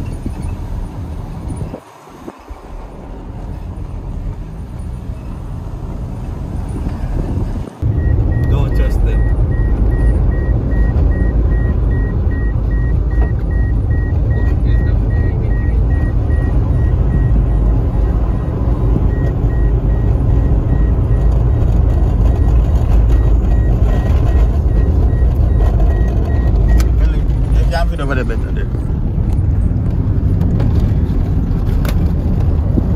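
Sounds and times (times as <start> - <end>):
car engine and tyre rumble: 0.0 - 32.9
electronic car warning chime: 7.8 - 18.5.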